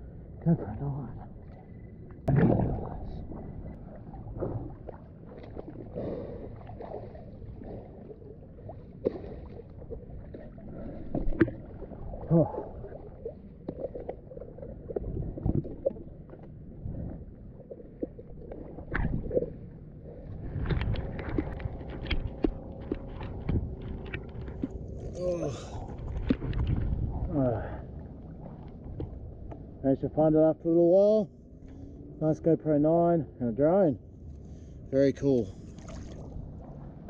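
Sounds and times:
water splashing and sloshing: 0.0s - 29.8s, 34.1s - 37.0s
knocks and gurgles: 0.6s - 27.8s.

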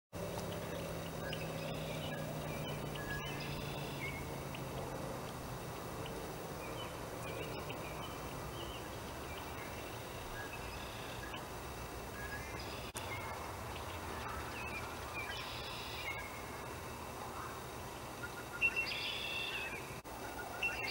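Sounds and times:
low hum: 0.2s - 20.9s
high chirping bird calls: 0.4s - 4.9s, 18.2s - 20.9s.

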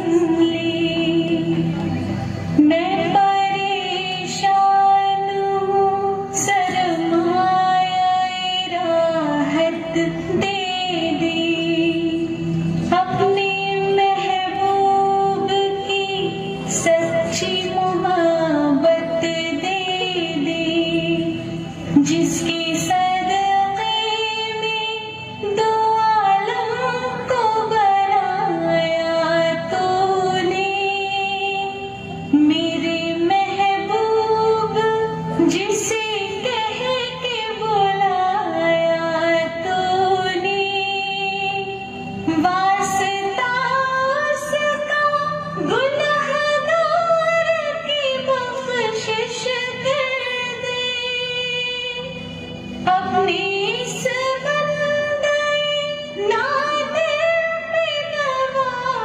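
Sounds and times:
woman singing: 0.0s - 59.0s.

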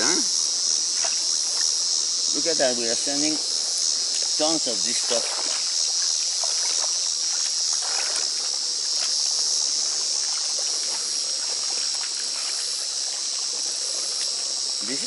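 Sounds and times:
insect chorus: 0.0s - 15.0s
hands splashing in pond water: 0.8s - 1.8s, 4.1s - 14.8s.

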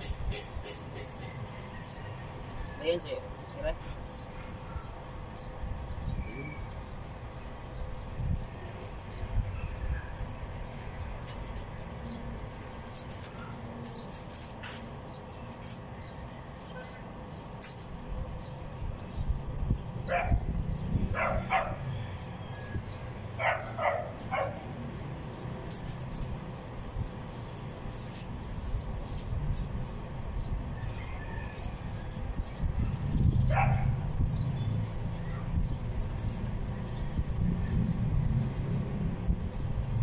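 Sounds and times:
steady low rumble: 14.9s - 30.9s
dog barking: 20.1s - 20.4s, 21.1s - 21.8s, 23.4s - 24.6s, 33.4s - 34.0s.

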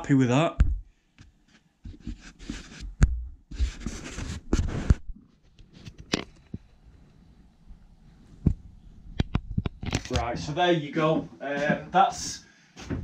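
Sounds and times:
rustling and brushing: 1.5s - 6.0s.

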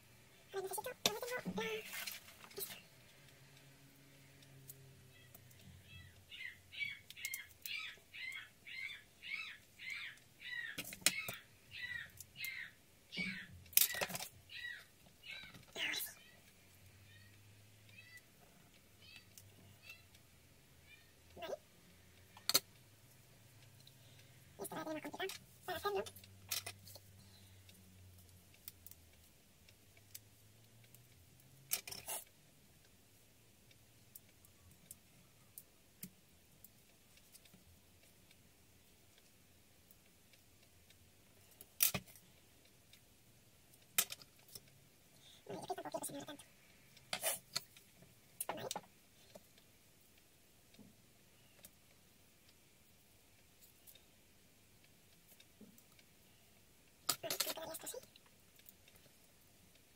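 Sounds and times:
crisp paper rustling: 0.6s - 2.9s
animal calling: 5.1s - 17.4s.

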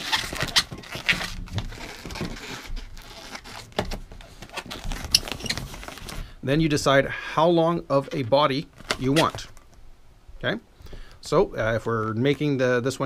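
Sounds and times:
balloons rubbing and squeaking: 0.0s - 6.8s, 8.0s - 9.8s.

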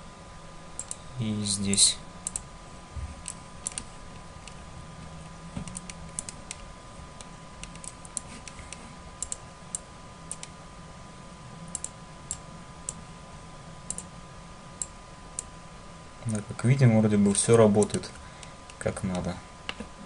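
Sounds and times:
faint electrical hum: 0.0s - 20.0s
keyboard and mouse clicks: 3.2s - 4.6s, 5.6s - 6.6s, 7.2s - 8.6s, 9.2s - 10.5s, 11.7s - 13.0s, 13.9s - 14.1s, 17.8s - 18.1s.

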